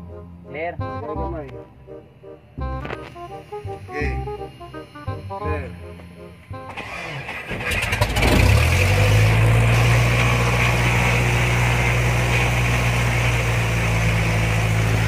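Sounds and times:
propeller plane engine idling: 6.8 - 15.0.

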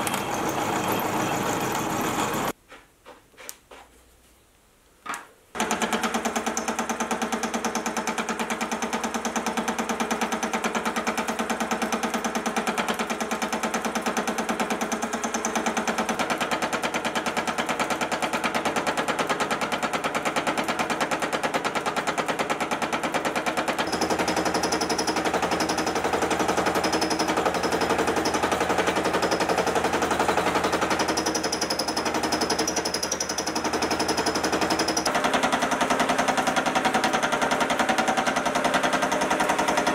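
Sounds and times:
mill running: 5.6 - 39.9
milling cutter chattering on steel: 23.7 - 35.7.

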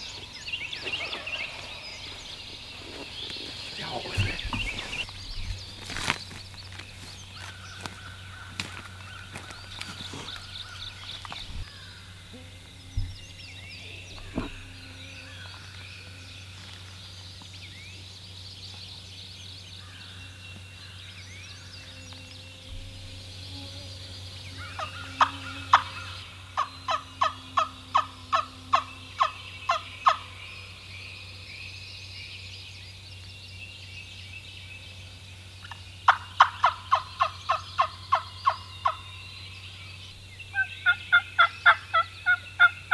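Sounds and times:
songbirds singing: 0.0 - 42.9
dull thumps: 14.1 - 14.8.

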